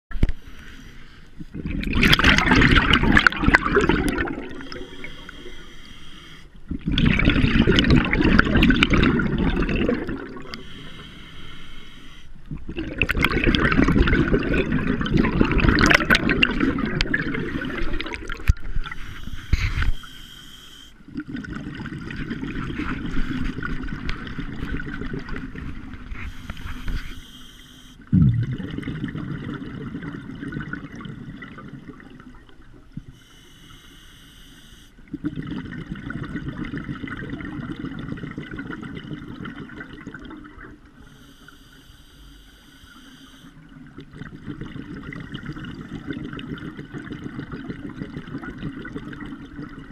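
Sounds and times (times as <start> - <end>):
regulator hissing inhalations: 0.3 - 1.4, 4.7 - 6.6, 10.5 - 12.4, 18.9 - 21.0, 26.2 - 28.0, 33.1 - 35.0, 41.0 - 43.6
exhaled bubbles gurgling underwater: 1.4 - 20.2, 21.0 - 33.8, 35.0 - 49.9.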